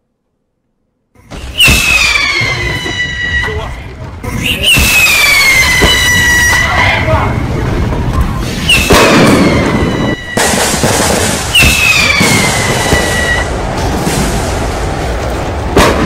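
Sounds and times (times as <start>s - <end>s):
sharp bang: 1.3s - 3.4s, 4.6s - 6.8s, 8.4s - 15.0s
loud blasts and crackling: 1.3s - 16.0s
high whistles dropping in pitch: 1.4s - 3.6s, 4.4s - 6.8s, 8.6s - 10.6s, 11.5s - 13.5s.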